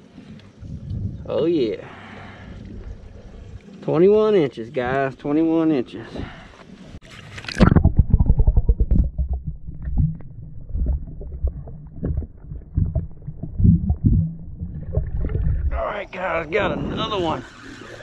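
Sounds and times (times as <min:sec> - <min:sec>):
muffled underwater rumbling: 0:00.5 - 0:01.5, 0:02.1 - 0:03.8, 0:07.5 - 0:18.0
irregular underwater knocks: 0:07.6 - 0:15.8.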